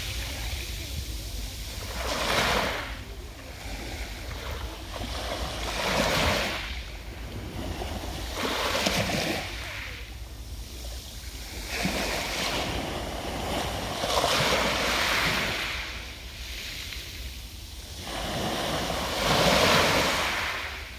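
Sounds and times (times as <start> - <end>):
waves washing over pebbles: 0.0 - 20.9.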